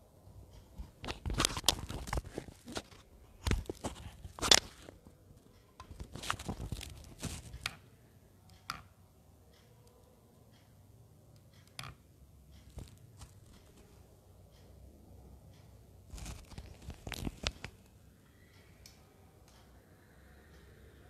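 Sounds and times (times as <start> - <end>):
rustling and crinkling handling: 0.7 - 5.2, 5.8 - 7.7, 12.7 - 14.0, 16.1 - 17.9.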